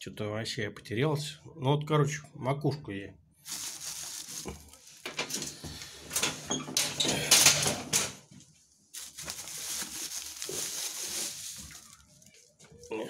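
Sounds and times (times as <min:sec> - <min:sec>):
plastic bag crinkling: 0:03.4 - 0:08.1, 0:08.9 - 0:13.0
dry plant stems rustling: 0:03.4 - 0:08.2, 0:08.9 - 0:13.0.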